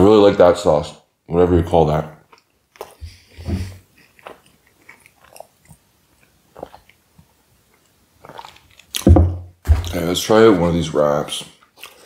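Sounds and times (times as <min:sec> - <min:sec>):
close chewing: 0:02.2 - 0:09.1, 0:11.5 - 0:12.0.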